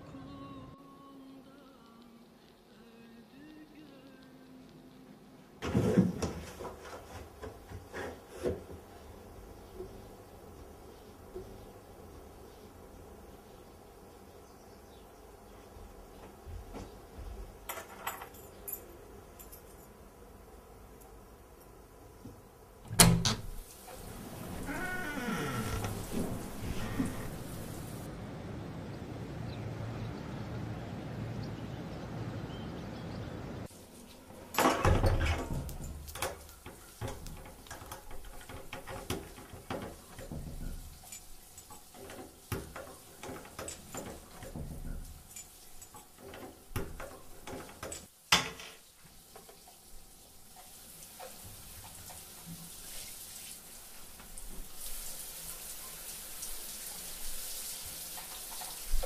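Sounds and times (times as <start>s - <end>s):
shower running: 23.0s - 28.1s, 33.6s - 59.0s.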